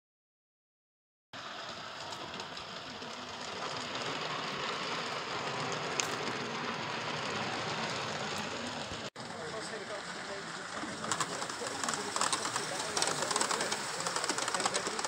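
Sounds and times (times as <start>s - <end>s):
model train wheels rolling on rails: 1.4s - 15.0s.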